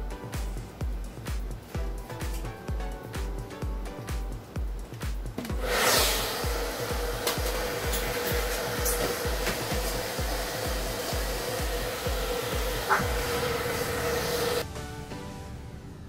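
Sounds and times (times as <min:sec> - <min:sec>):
background music with low beat: 0:00.0 - 0:16.0
hair dryer running: 0:05.4 - 0:14.7.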